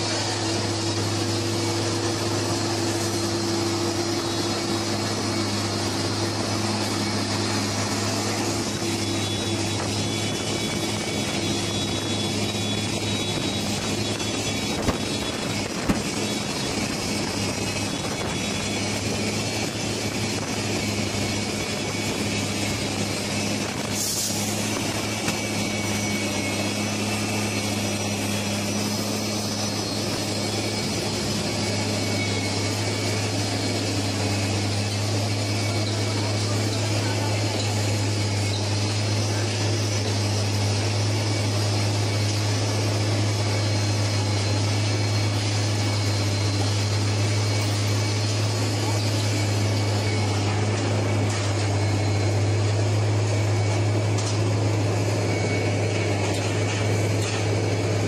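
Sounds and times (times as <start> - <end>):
track-laying machine droning: 0.0 - 58.0.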